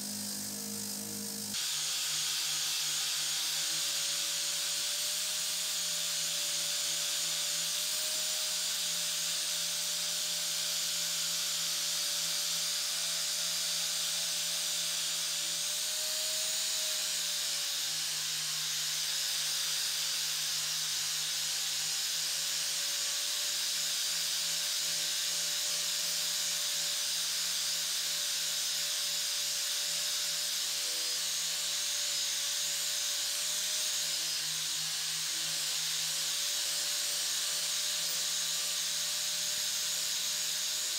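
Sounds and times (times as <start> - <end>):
angle grinder motor whine: 0.0 - 40.9.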